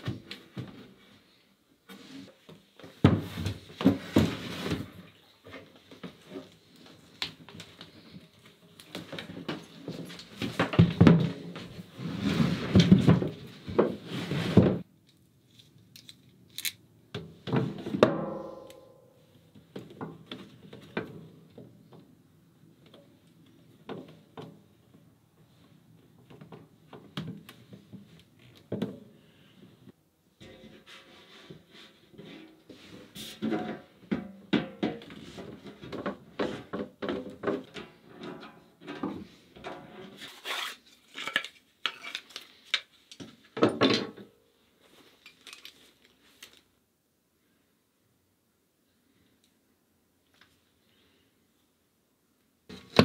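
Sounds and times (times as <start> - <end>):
clicks clinks and rubbing: 45.2 - 46.2.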